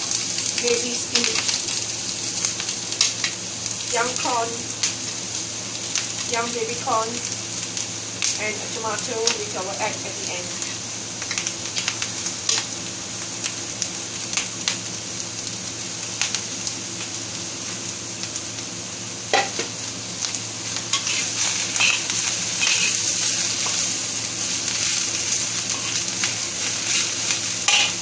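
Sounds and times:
food sizzling in a wok: 0.0s - 28.0s
metal spatula scraping pan: 20.9s - 22.0s, 22.6s - 23.0s, 27.7s - 28.0s.

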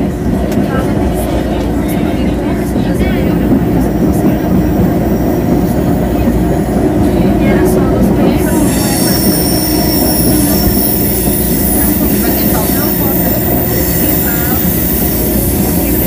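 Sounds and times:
electric train rumble: 0.0s - 16.0s
wheel squeals: 8.5s - 16.0s.

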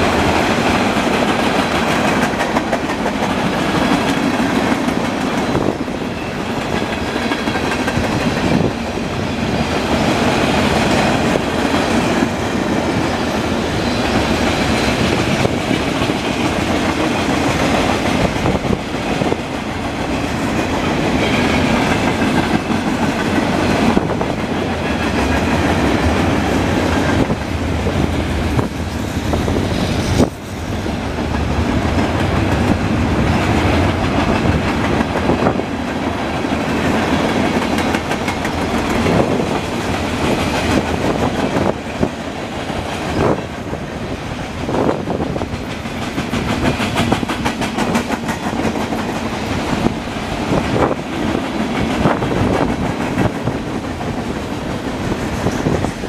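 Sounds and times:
steel wheels rumbling on rail: 0.0s - 56.0s
wheels clicking over rail joints: 0.4s - 5.9s, 31.2s - 43.5s.

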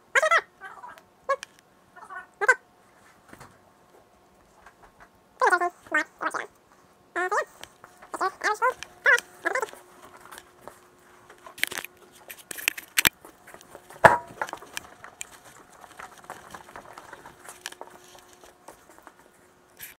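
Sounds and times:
faint steady hum: 0.0s - 20.0s
sharp knocks and clicks: 14.0s - 15.3s.

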